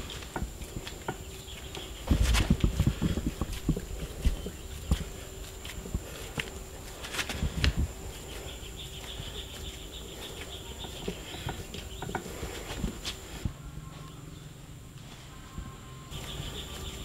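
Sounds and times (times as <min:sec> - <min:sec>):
hands working wet clay: 0:00.0 - 0:13.5
birds chirping faintly: 0:00.0 - 0:17.0.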